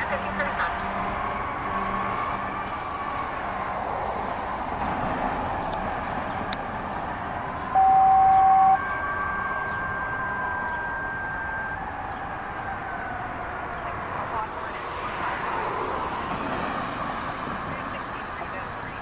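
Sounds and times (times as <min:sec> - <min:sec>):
siren wailing: 0:00.0 - 0:04.7, 0:05.8 - 0:19.0
two-tone radio page: 0:07.8 - 0:11.8, 0:13.8 - 0:14.9, 0:17.7 - 0:19.0.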